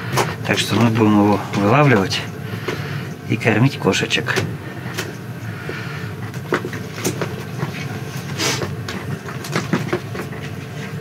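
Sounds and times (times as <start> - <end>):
handling clicks and rustles: 0.0 - 2.8
low mechanical hum: 0.0 - 11.0.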